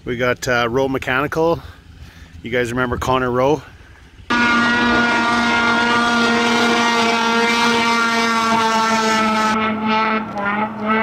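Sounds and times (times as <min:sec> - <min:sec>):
engine droning at high revs: 0:04.3 - 0:11.0.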